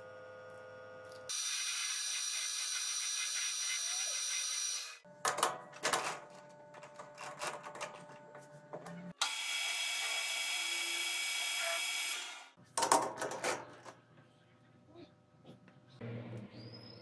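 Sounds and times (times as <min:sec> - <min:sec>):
machine tool running high-pitched: 0:01.3 - 0:05.0, 0:09.2 - 0:12.5.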